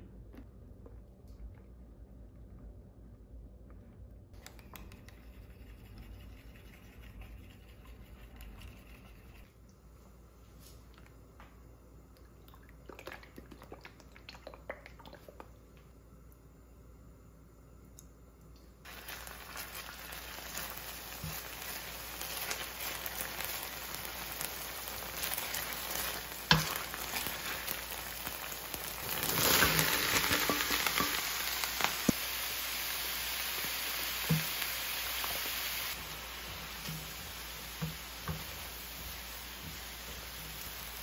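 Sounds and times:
food sizzling in hot oil: 0:18.8 - 0:41.0
spatula stirring in skillet: 0:18.9 - 0:31.3, 0:35.9 - 0:41.0.

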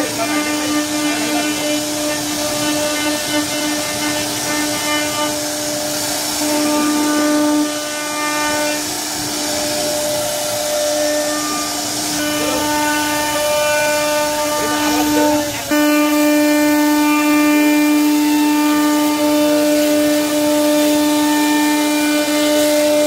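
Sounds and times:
router bit cutting wood: 0:00.0 - 0:23.0
router spindle whining: 0:00.0 - 0:23.0.

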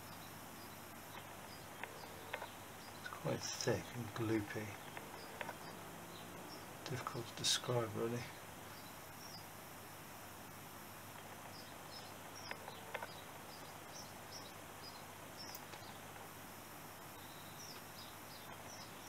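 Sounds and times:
faint steady hiss: 0:00.0 - 0:19.0
small clicks: 0:01.1 - 0:03.1, 0:04.7 - 0:05.8, 0:12.4 - 0:13.3, 0:15.4 - 0:16.3.

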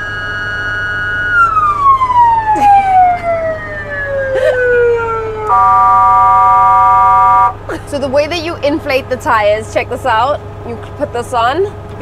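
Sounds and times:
electronic siren winding down: 0:00.0 - 0:07.6.

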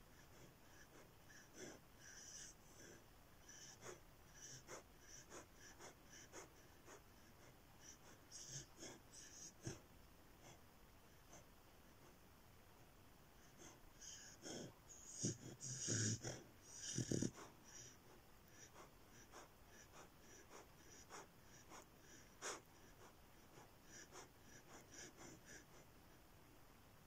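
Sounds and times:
puppy wheezy breathing and snorts: 0:00.0 - 0:12.2, 0:13.4 - 0:26.0.

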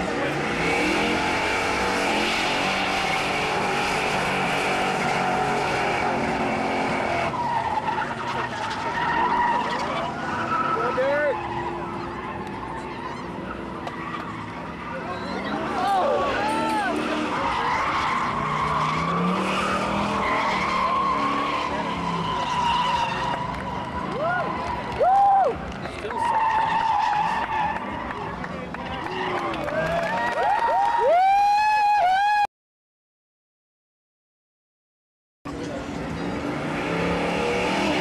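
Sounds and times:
car engine revving: 0:00.0 - 0:25.0, 0:35.5 - 0:38.0
tyres skidding on pavement: 0:00.0 - 0:31.7.

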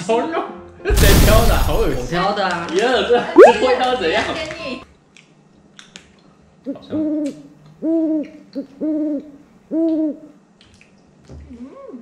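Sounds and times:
owl hooting: 0:06.7 - 0:10.3.

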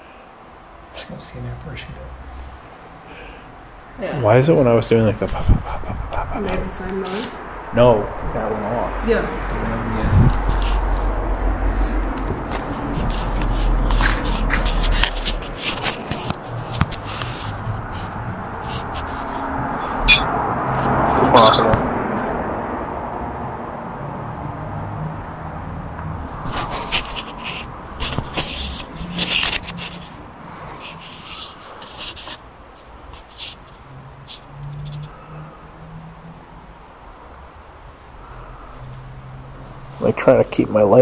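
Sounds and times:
handling noise rustling and scraping: 0:10.2 - 0:11.2, 0:12.3 - 0:21.0, 0:26.3 - 0:35.1.

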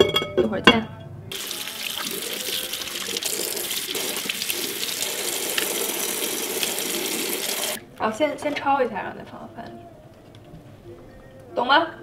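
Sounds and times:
tap water splashing on leaves: 0:01.3 - 0:07.8.

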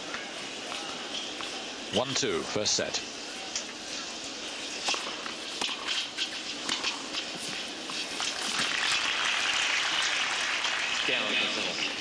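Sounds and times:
tennis racket hits: 0:04.8 - 0:08.7
tennis ball bounces: 0:04.8 - 0:08.9
crowd applause: 0:08.5 - 0:12.0.

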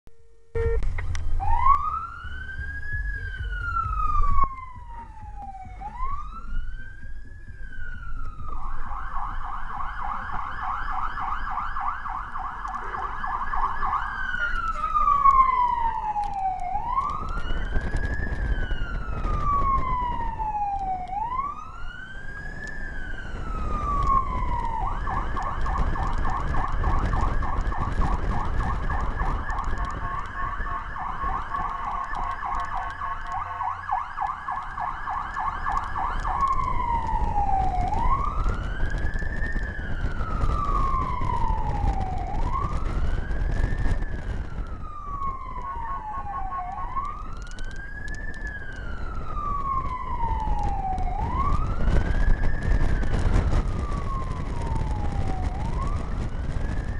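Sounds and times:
truck engine and road noise: 0:00.5 - 0:56.9
siren wailing and yelping: 0:00.6 - 0:56.9.

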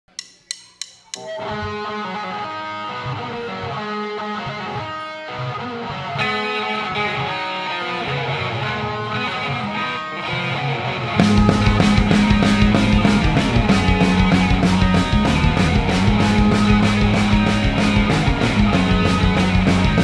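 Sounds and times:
count-in clicks: 0:00.0 - 0:01.5
electric guitars playing riff: 0:01.0 - 0:20.0
bass guitar: 0:01.1 - 0:20.0.

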